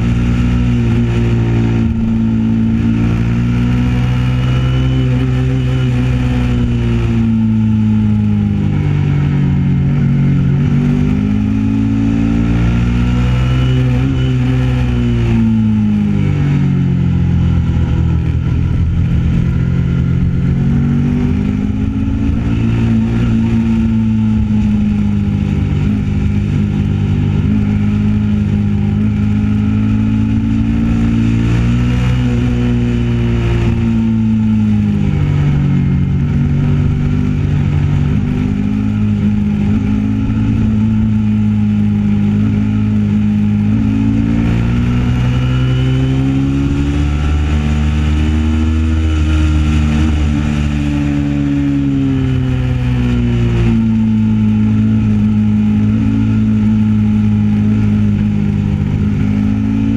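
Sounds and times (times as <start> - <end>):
motorcycle engine revving: 0.0 - 59.9
wind rumbling: 15.0 - 42.3.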